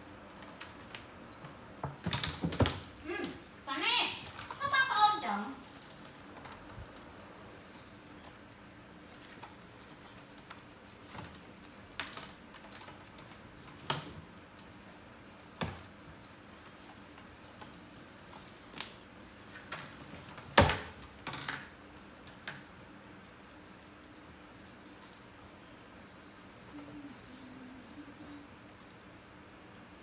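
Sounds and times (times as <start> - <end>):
plastic basket clacking on tiles: 1.8 - 3.4, 19.6 - 21.7.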